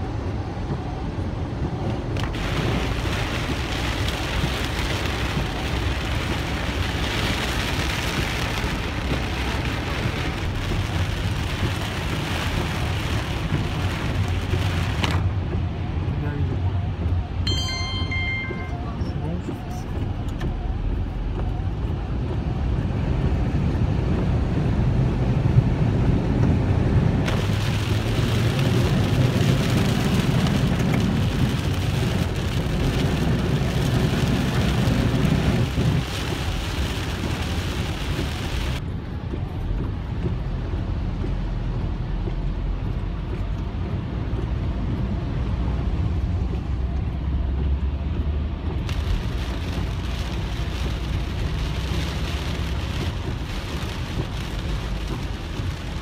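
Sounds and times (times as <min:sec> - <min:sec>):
car engine and tyres rumbling: 0:00.0 - 0:56.0
rain and water spray hissing: 0:02.2 - 0:15.9, 0:27.0 - 0:38.8, 0:48.6 - 0:56.0.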